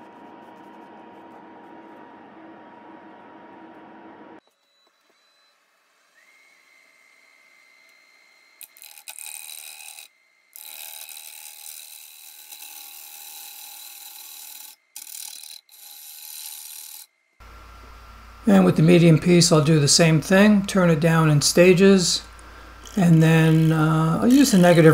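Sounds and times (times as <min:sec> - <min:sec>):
lathe whine: 0:00.0 - 0:24.9
gouge scraping wood: 0:22.8 - 0:24.9.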